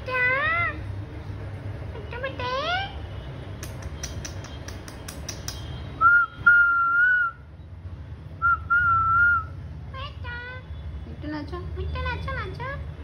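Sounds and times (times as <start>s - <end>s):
sharp clicks: 3.6s - 5.8s
whistled phrases: 6.0s - 7.5s.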